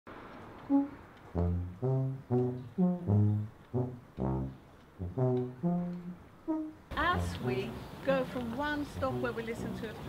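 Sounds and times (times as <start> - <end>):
low brass short notes: 0.7 - 7.8.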